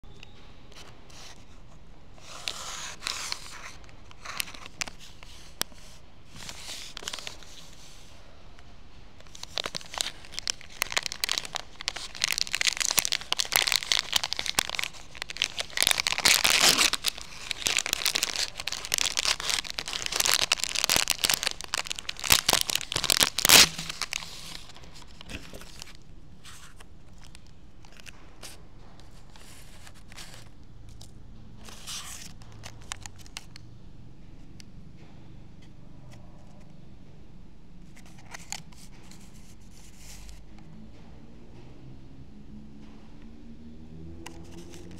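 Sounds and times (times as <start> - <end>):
plastic wrapper crinkling and tearing: 2.4 - 7.8, 9.2 - 28.1, 29.3 - 33.6.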